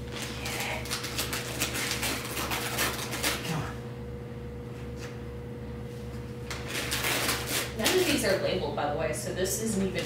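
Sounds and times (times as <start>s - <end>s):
steady low hum: 0.0s - 10.0s
wrapping paper crinkling: 0.1s - 3.5s, 6.5s - 8.3s.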